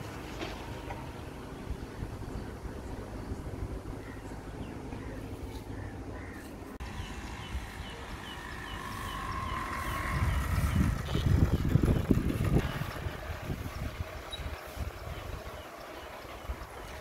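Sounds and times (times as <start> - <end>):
bird chirping: 1.5 - 17.0
wind rumbling on microphone: 6.8 - 17.0.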